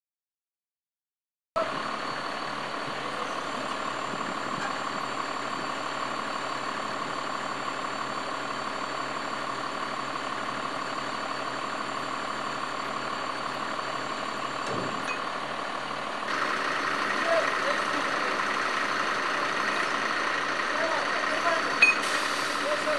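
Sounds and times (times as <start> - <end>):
crane engine idling: 1.6 - 22.9.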